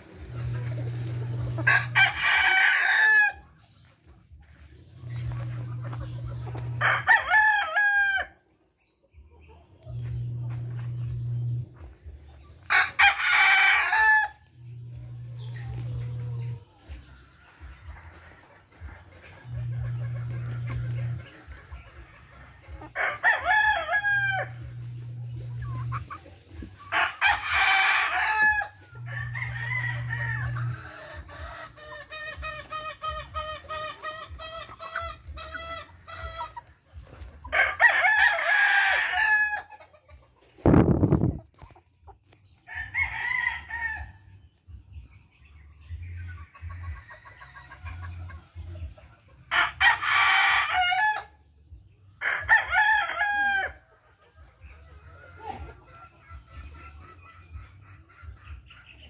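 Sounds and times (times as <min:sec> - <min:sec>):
hens clucking: 0:00.0 - 0:59.0.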